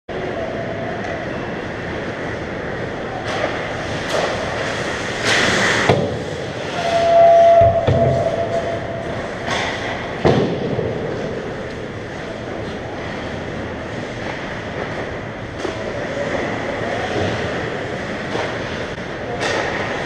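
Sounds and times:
skates scraping on ice: 3.3 - 6.8
steady mid-pitched tone: 6.8 - 10.2.

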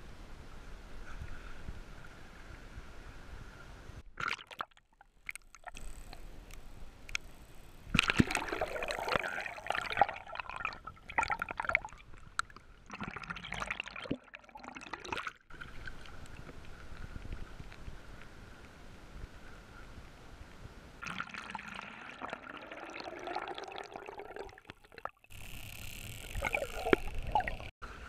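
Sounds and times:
water gurgling and sloshing: 4.0 - 18.7, 21.0 - 27.8
dolphins clicking: 5.2 - 9.7, 24.4 - 27.7.

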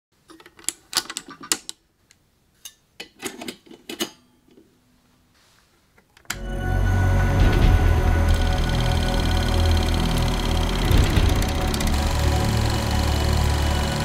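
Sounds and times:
loud music: 6.4 - 14.0
film projector clicks and rattling: 7.4 - 14.0.

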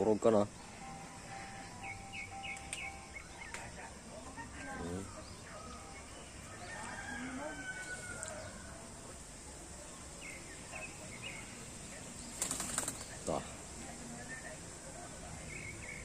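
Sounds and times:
bird calls: 0.0 - 8.8, 10.0 - 13.6
distant voices: 0.0 - 16.0.

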